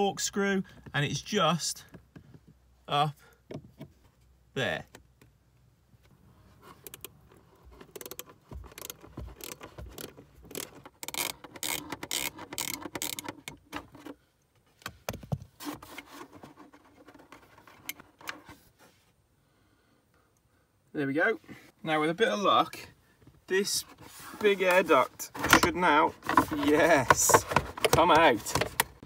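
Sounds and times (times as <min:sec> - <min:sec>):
plastic duct rattling and rubbing: 0:06.7 - 0:14.2, 0:15.1 - 0:18.6, 0:23.6 - 0:29.0
screwdriver bit clicking and scraping: 0:08.8 - 0:13.6.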